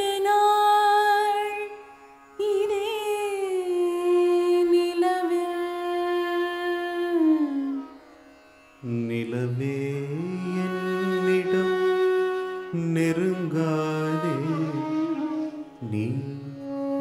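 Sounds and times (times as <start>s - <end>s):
lower voice singing: 12.7s - 17.0s.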